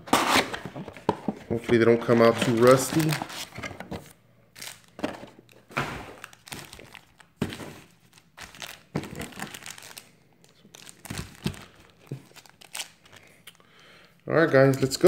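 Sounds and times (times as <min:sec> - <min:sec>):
foil wrappers crinkling: 0:02.0 - 0:03.5, 0:04.6 - 0:13.4.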